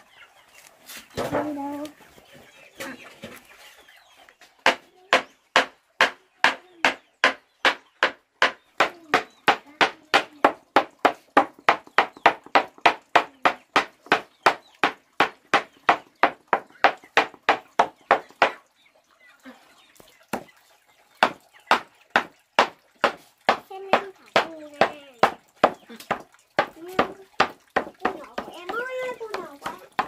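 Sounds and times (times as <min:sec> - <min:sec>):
cleaver chopping meat: 0:04.7 - 0:18.6, 0:21.2 - 0:30.0.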